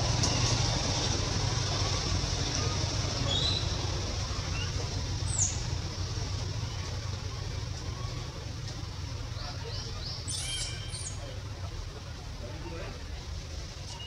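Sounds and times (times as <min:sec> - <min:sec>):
low rumble: 0:00.0 - 0:10.2.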